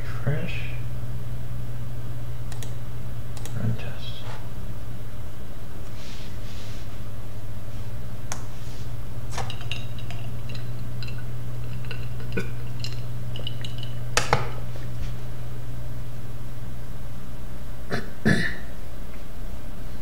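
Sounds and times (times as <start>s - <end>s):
computer low hum: 0.0s - 20.0s
hard drive clicks and ticks: 2.5s - 3.9s, 9.3s - 14.6s.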